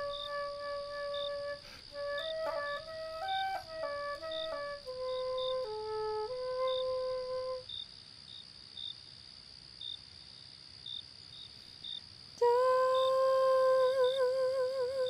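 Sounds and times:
long held wordless note: 0.0 - 7.6
crickets trilling: 0.0 - 15.0
person humming: 12.4 - 15.0.

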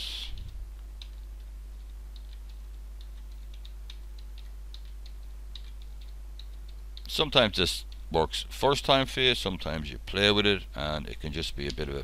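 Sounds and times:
low electrical hum: 0.0 - 12.0
computer keyboard key presses: 0.4 - 7.1.

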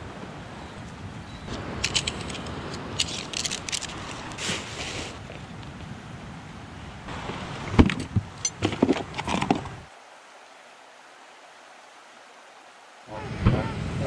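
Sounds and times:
camping gear rustling: 0.0 - 9.9
faint hiss: 0.0 - 14.0.

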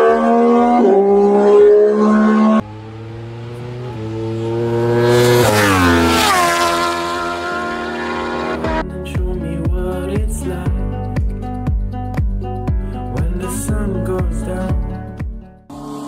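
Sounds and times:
motorcycle engine revving high: 0.0 - 8.8
motorcycle passing at speed: 0.0 - 8.8.

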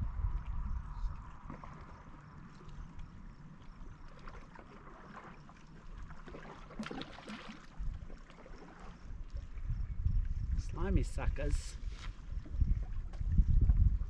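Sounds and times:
small waves lapping on rocks: 1.3 - 9.1
fish splashing into water: 4.1 - 9.0.

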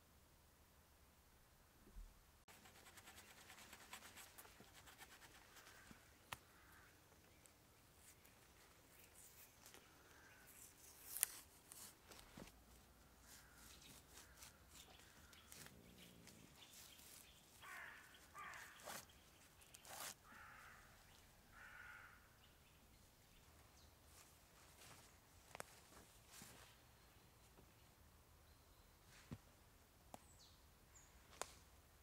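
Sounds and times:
saplings cracking and scraping: 8.0 - 20.6
bird harsh calls: 13.3 - 22.4.

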